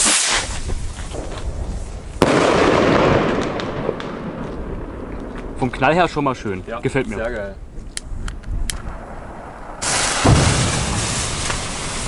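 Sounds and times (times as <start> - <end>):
rocket launching with rushing hiss: 0.0 - 3.6, 9.8 - 12.0
sharp firework bang: 2.2 - 4.4, 9.8 - 12.0.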